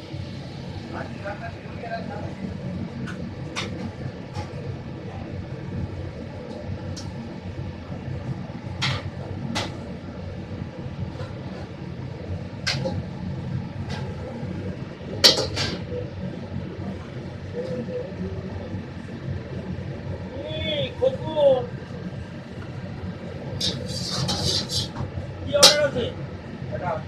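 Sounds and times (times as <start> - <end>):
kitchen low rumble: 0.0 - 27.0
utensils clanking on cookware: 23.6 - 25.0, 25.6 - 25.9.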